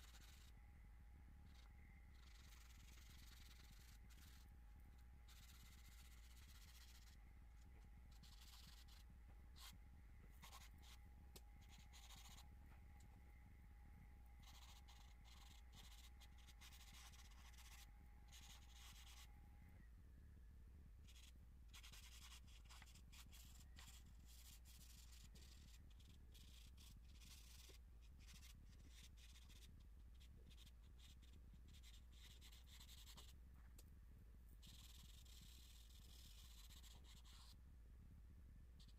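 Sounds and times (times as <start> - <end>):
charcoal scratching on paper: 0.0 - 0.5, 1.5 - 4.5, 5.3 - 7.2, 8.1 - 9.8, 11.6 - 12.5, 14.4 - 19.3, 21.1 - 33.4, 34.6 - 37.6
low steady hum: 0.0 - 38.9.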